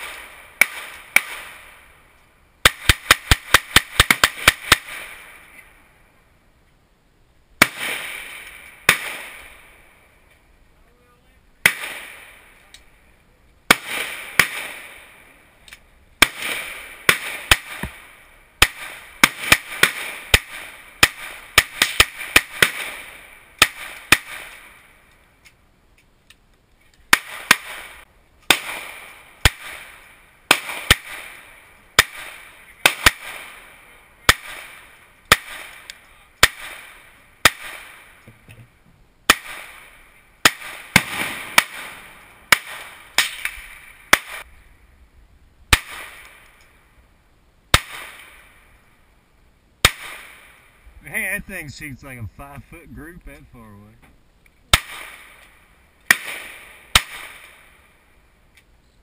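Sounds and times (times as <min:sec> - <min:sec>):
faint distant gunshots: 0:00.0 - 0:02.0, 0:02.6 - 0:05.6, 0:07.6 - 0:10.0, 0:11.6 - 0:12.6, 0:13.7 - 0:15.4, 0:16.2 - 0:25.0, 0:27.1 - 0:38.2, 0:39.3 - 0:44.5, 0:49.8 - 0:52.2
pistol shots with echo: 0:07.6 - 0:09.7, 0:11.6 - 0:12.5, 0:13.7 - 0:15.2, 0:16.2 - 0:24.7, 0:39.3 - 0:44.4, 0:49.8 - 0:50.6, 0:54.7 - 0:55.4, 0:56.1 - 0:57.7.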